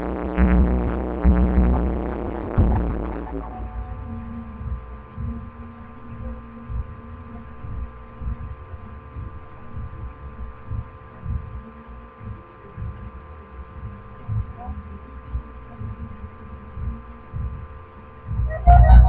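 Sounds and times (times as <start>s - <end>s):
dull low thumps: 0.0s - 19.0s
steady electrical hum: 0.0s - 19.0s.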